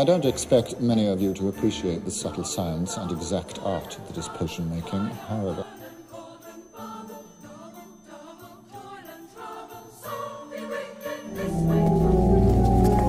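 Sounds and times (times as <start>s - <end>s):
light melody of high notes: 10.5s - 13.0s.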